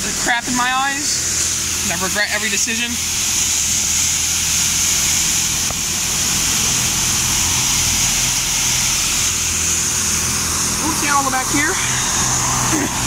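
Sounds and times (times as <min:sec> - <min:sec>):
low machine hum: 0:00.0 - 0:13.0
water jets spraying on car: 0:00.0 - 0:13.0.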